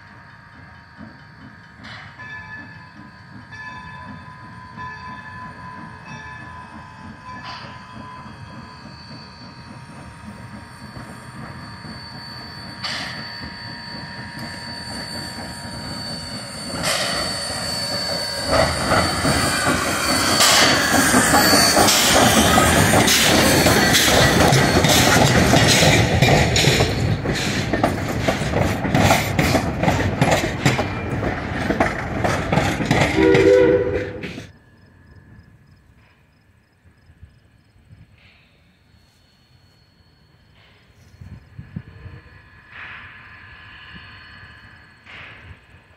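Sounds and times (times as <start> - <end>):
steam train running noise: 0.0 - 45.9
wheels clicking over rail joints: 16.7 - 34.6.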